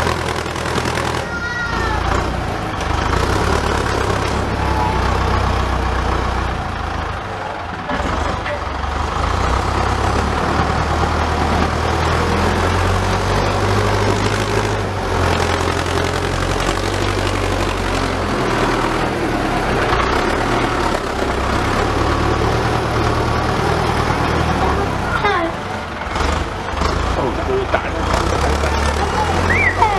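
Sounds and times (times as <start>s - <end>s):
dozer blade pushing soil: 0.0s - 4.8s, 7.7s - 25.3s
tractor engine running under load: 0.0s - 29.9s.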